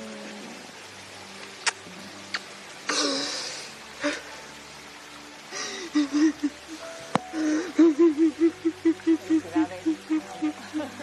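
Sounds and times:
gasping breath: 0:02.9 - 0:04.5, 0:05.5 - 0:06.4, 0:07.3 - 0:07.9
woman crying and sobbing: 0:05.5 - 0:11.0.

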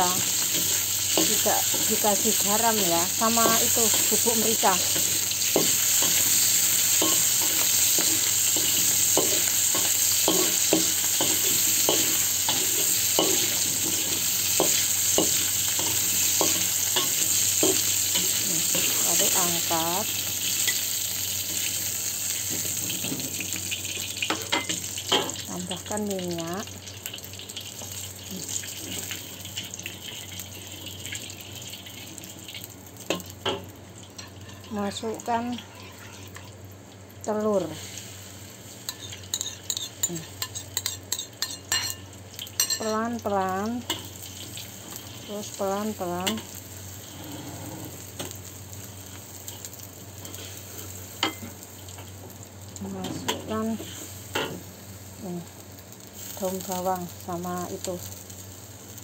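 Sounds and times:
shrimp sizzling in a wok: 0:00.0 - 0:59.0
metal spatula scraping a wok: 0:38.9 - 0:42.0.

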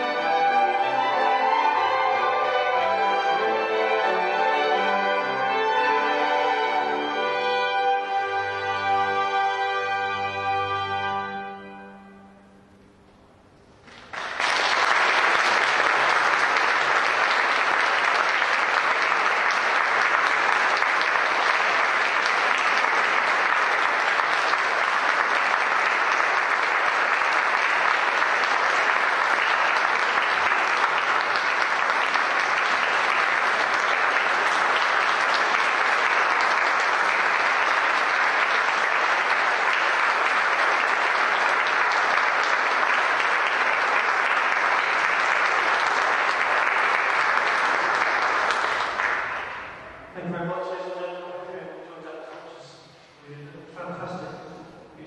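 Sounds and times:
audience clapping: 0:13.8 - 0:51.5.

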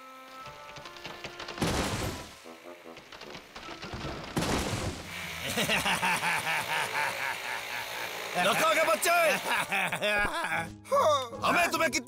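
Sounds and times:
mechanical rattling of tree cutting: 0:00.0 - 0:10.0
cartoon background music: 0:08.4 - 0:12.0.

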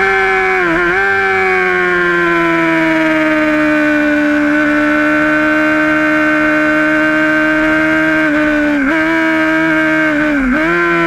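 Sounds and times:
motorcycle engine at high revs: 0:00.0 - 0:11.0.

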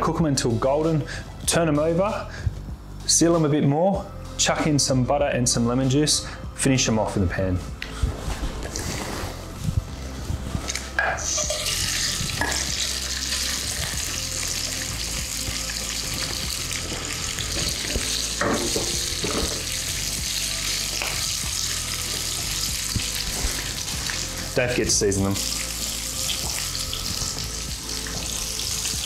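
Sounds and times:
prawns sizzling in frying pan: 0:11.2 - 0:29.0.

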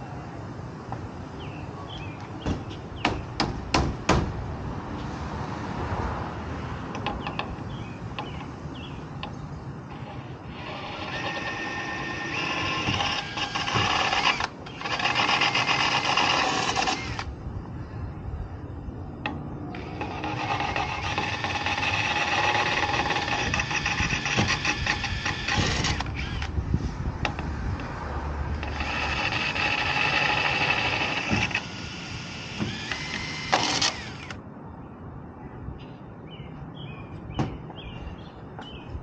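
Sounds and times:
power drill running: 0:10.0 - 0:17.3, 0:19.8 - 0:26.5, 0:28.6 - 0:34.4.

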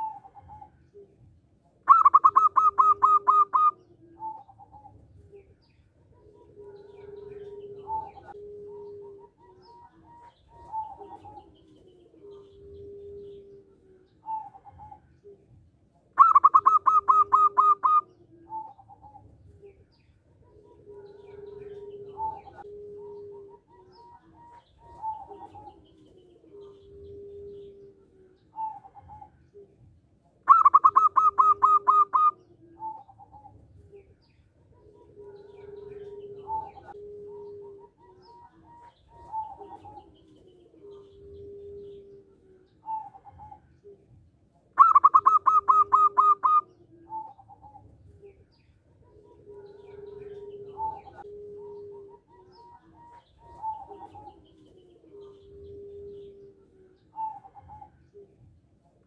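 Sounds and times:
dove cooing: 0:00.0 - 0:59.0.

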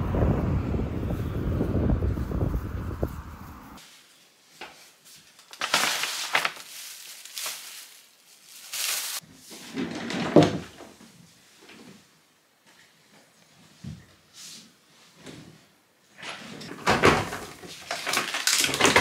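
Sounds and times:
paper bag rustling and crinkling: 0:03.8 - 0:09.2, 0:16.8 - 0:19.0.

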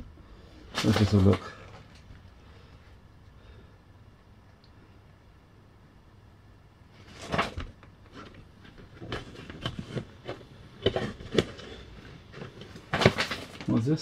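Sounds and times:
plastic parts knocking and clicking: 0:07.2 - 0:13.8.

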